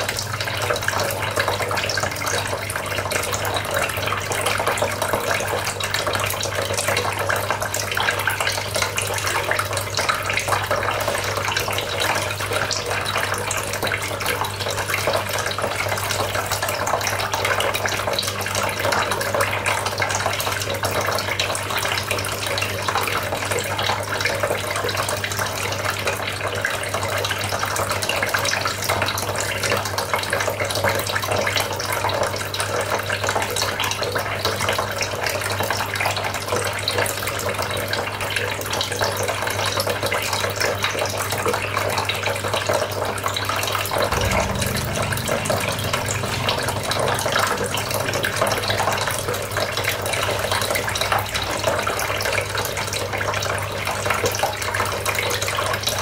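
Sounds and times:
low hum: 44.1s - 51.8s.

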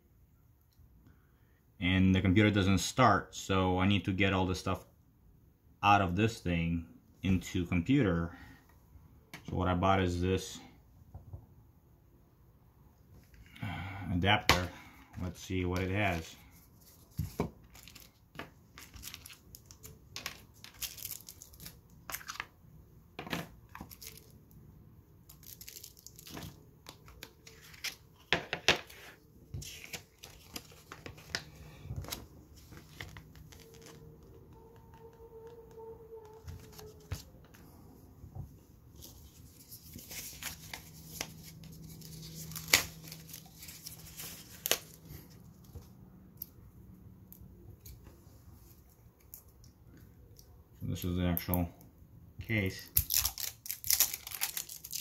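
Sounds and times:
paper and plastic crinkling: 15.7s - 22.5s, 23.7s - 24.4s, 25.3s - 34.4s, 36.3s - 37.7s, 39.0s - 45.8s, 53.0s - 55.0s.

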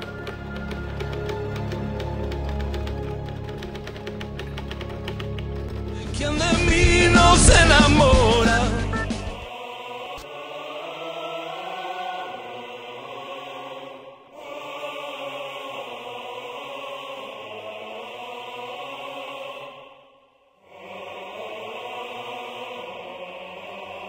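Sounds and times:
choral chant: 6.0s - 24.0s.

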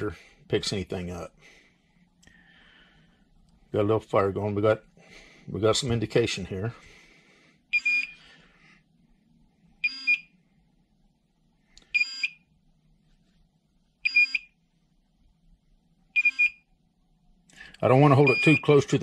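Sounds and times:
high double beeps of alarm: 7.8s - 8.2s, 9.8s - 10.3s, 12.0s - 12.5s, 14.0s - 14.5s, 16.2s - 16.7s, 18.2s - 18.7s.

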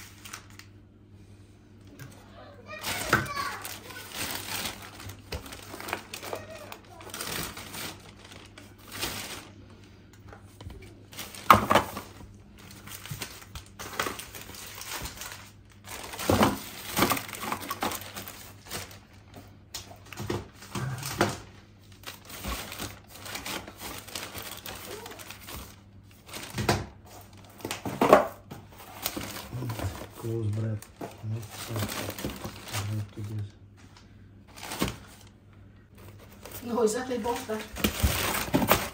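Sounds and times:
plastic bag rustling: 2.7s - 33.6s, 34.5s - 38.9s
items knocking in a box: 11.2s - 12.2s, 15.9s - 18.9s, 26.3s - 30.2s, 37.6s - 38.9s.

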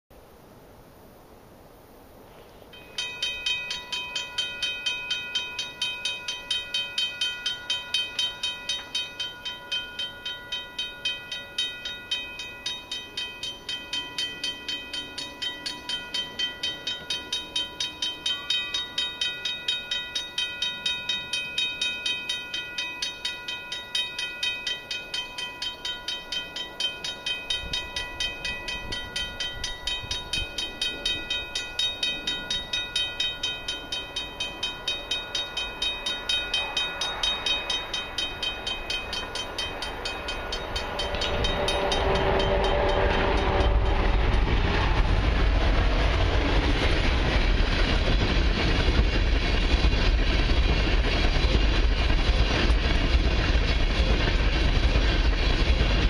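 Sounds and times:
level crossing bell ringing: 2.8s - 44.0s
low rumble: 36.6s - 56.0s.

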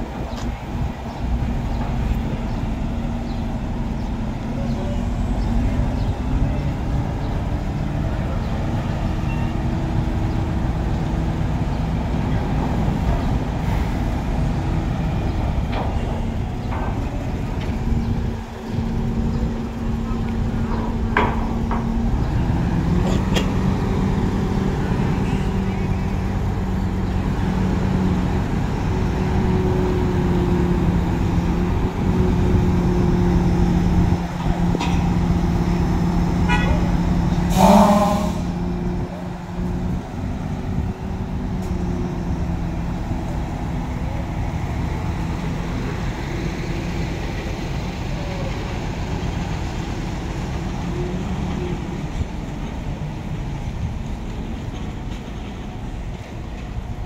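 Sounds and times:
heavy diesel engines running: 0.0s - 57.0s
horn toot: 36.5s - 38.6s.

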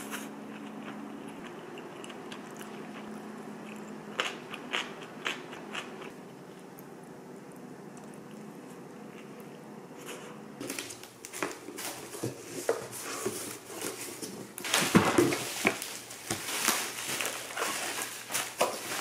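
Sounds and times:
bubble wrap crinkling: 10.6s - 19.0s.

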